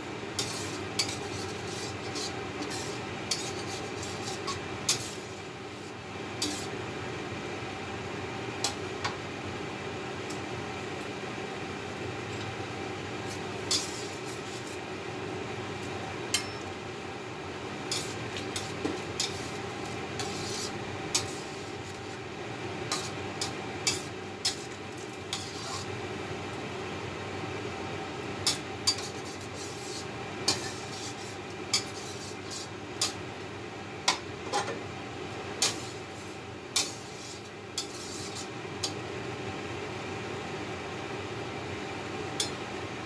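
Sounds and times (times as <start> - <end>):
spatula scraping in wok: 0.4 - 6.7, 13.2 - 14.8, 17.9 - 22.2, 22.9 - 25.9, 28.4 - 33.2, 35.6 - 39.0.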